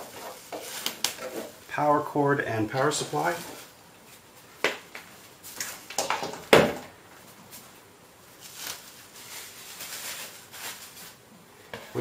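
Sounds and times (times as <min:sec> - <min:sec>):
bubble wrap crinkling: 0:00.0 - 0:01.8, 0:02.9 - 0:04.5, 0:07.2 - 0:11.3.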